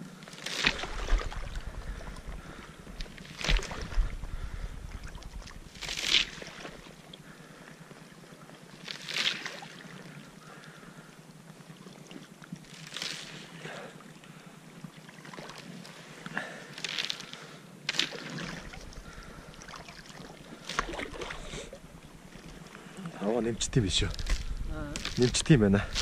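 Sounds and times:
wet footsteps crunching on ice: 24.0 - 26.0.

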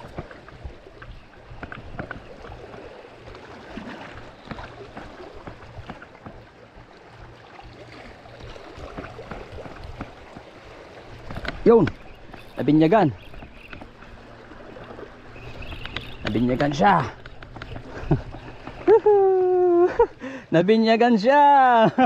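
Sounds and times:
seawater washing along shore: 0.0 - 22.0
small clicks and knocks: 11.3 - 12.6, 13.3 - 13.9, 15.6 - 17.9.

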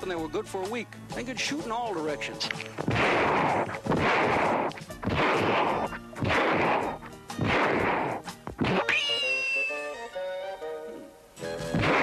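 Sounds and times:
man imitating gunshots with mouth: 2.9 - 9.0, 11.8 - 12.0
whistled ricochet whine: 3.0 - 10.1.

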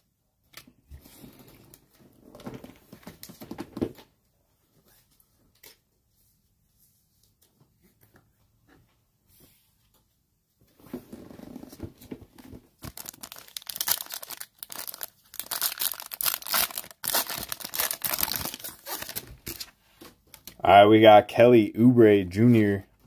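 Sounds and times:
foil wrapper tearing and crinkling: 12.8 - 19.7.

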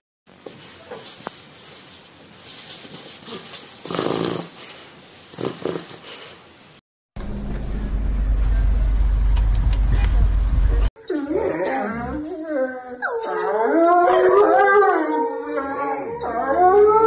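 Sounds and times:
puppy snoring: 3.3 - 4.6, 5.3 - 6.4
loud steady low rumble: 7.2 - 10.9.

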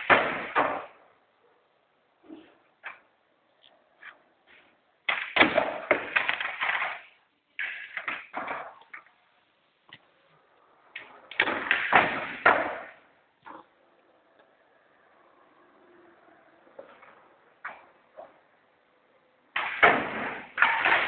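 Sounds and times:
skateboard clattering on concrete: 5.1 - 9.1.

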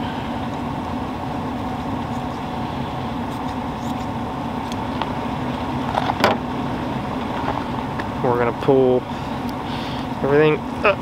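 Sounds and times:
motor humming: 0.0 - 8.3.

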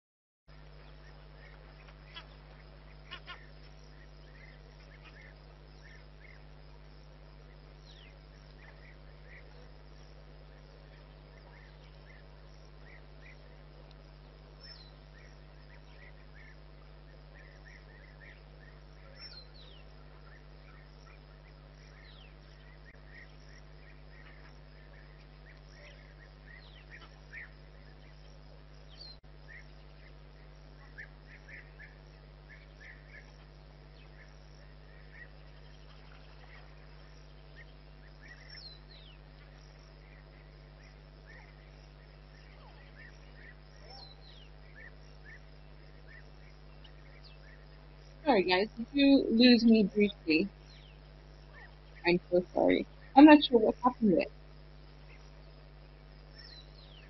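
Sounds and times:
steady low hum: 0.5 - 57.0
wild bird chirps and calls: 0.7 - 57.0.

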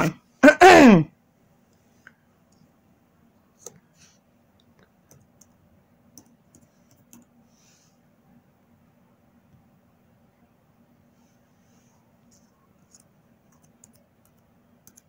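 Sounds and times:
keyboard keys clicking: 12.3 - 15.0.

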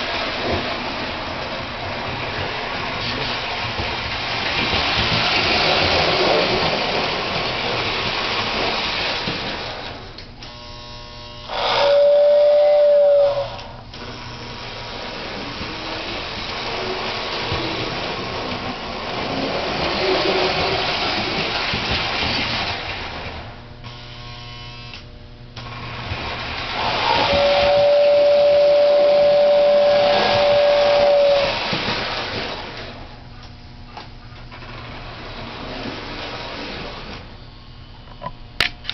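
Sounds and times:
toy train rumbling on track: 0.0 - 24.0, 25.6 - 38.9
toy train whistle: 10.4 - 14.8, 26.8 - 31.9.

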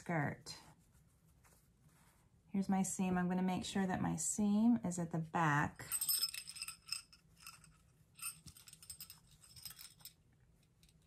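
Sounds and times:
small jingle bell tinkling: 5.9 - 10.2.

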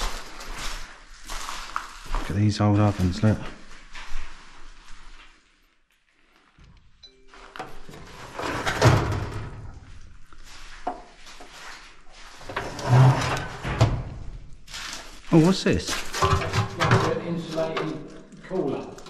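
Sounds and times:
rustling: 0.0 - 19.0
knocks and scrapes of hard objects: 15.9 - 18.0.

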